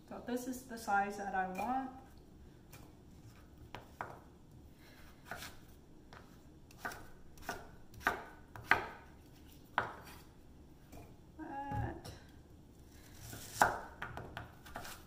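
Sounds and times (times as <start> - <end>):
knife chopping on wooden board: 5.2 - 9.1, 9.8 - 10.2, 13.3 - 15.0.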